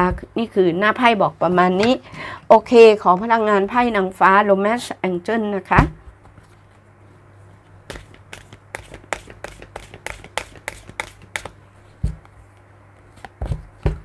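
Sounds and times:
cards being shuffled: 0:07.9 - 0:11.6.

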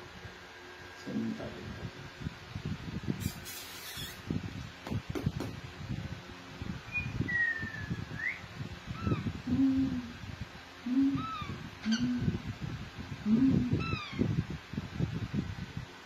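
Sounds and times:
parakeets chirping: 0:03.2 - 0:04.2, 0:08.3 - 0:09.3, 0:11.1 - 0:12.2
low hoot-like calls: 0:10.9 - 0:12.3.

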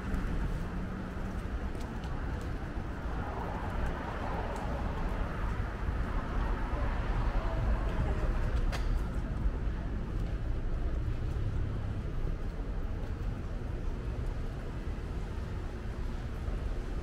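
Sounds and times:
low rumble of traffic: 0:00.0 - 0:17.0
faint voices: 0:06.2 - 0:10.2.

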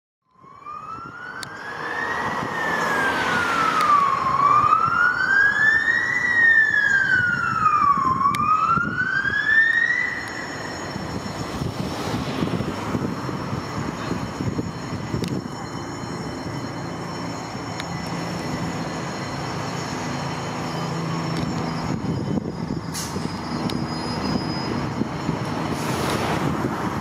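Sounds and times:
fire engine siren wailing: 0:00.2 - 0:27.0
road traffic: 0:00.3 - 0:27.0
truck noise: 0:10.0 - 0:27.0.

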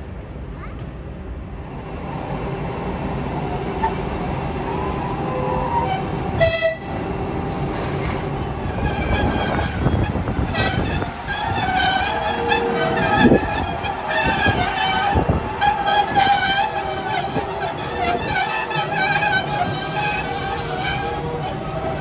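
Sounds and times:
locomotive wheels rumbling: 0:01.8 - 0:22.0
locomotive horn toot: 0:05.4 - 0:07.0, 0:08.0 - 0:22.0.

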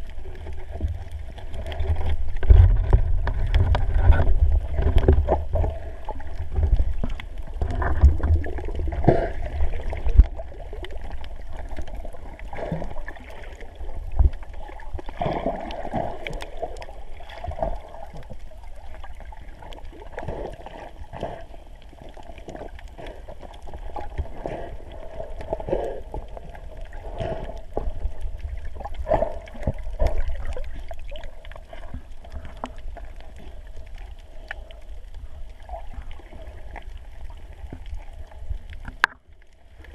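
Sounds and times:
underwater water swishing: 0:00.0 - 0:39.9
small clicks and knocks: 0:38.7 - 0:39.3.

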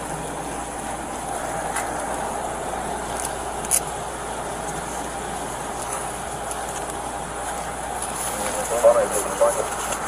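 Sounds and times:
motor vehicle running: 0:00.0 - 0:10.0.

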